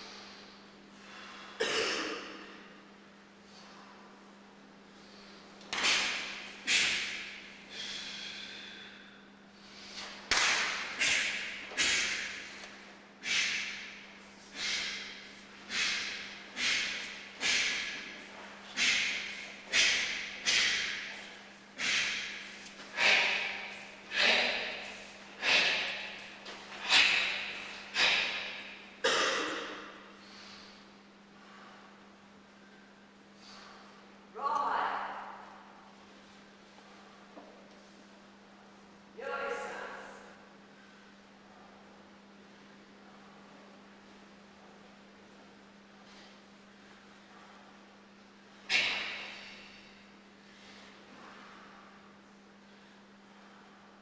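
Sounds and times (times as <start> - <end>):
faint steady hum: 0.0 - 54.0
sharp snaps of karate strikes: 5.6 - 7.4, 10.0 - 14.0, 14.6 - 28.7, 48.7 - 49.6.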